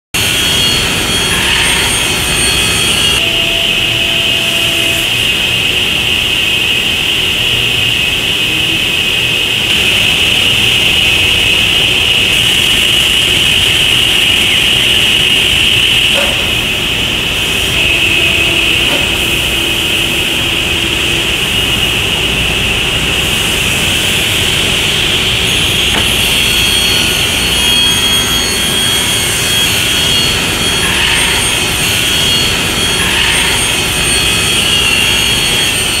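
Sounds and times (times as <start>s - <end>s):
panel saw running with high whine: 16.8s - 36.0s.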